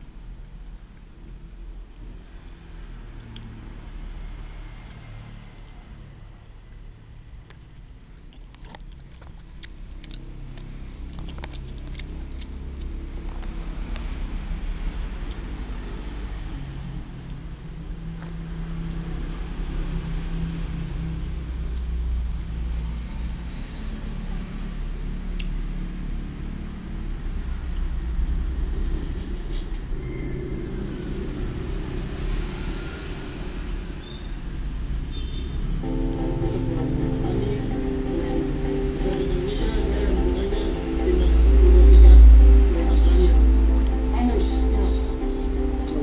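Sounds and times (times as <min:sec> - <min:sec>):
low engine-like rumble: 0:00.0 - 0:46.0
low rumble: 0:25.2 - 0:35.1, 0:35.9 - 0:46.0.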